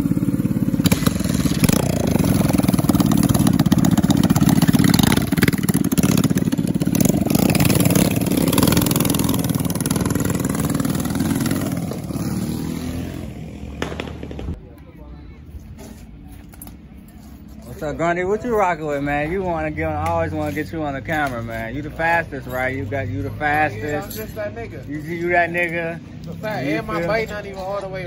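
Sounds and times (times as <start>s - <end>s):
mini bike engine revving: 0.0s - 14.6s.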